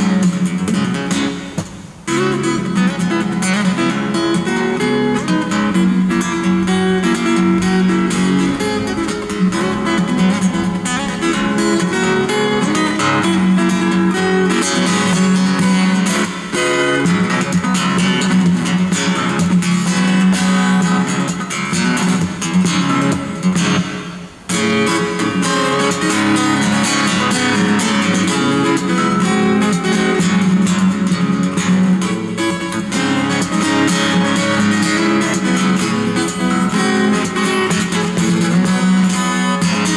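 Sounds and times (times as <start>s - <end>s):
fingerstyle acoustic guitar: 0.0s - 39.9s
taps on guitar body: 1.5s - 1.9s.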